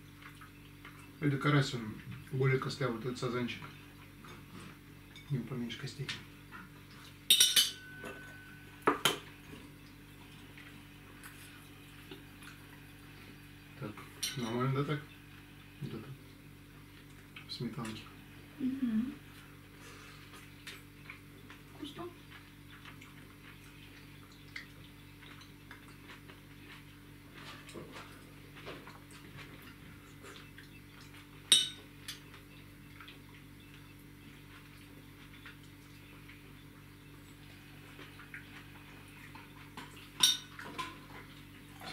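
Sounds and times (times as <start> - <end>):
faint steady hum: 0.0 - 41.9
cutlery clinking against plates: 7.2 - 9.2, 14.0 - 14.6, 31.0 - 32.4, 39.8 - 41.1.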